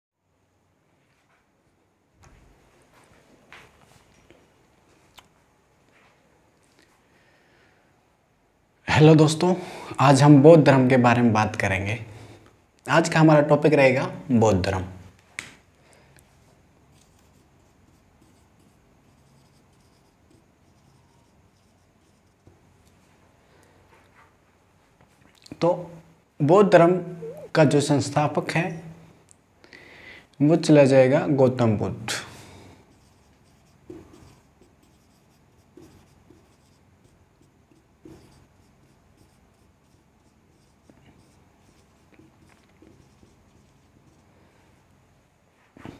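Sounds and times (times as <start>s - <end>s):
marker scratching on whiteboard: 16.3s - 22.6s, 32.8s - 44.4s
marker tip tapping board: 33.8s - 34.8s, 37.7s - 38.4s.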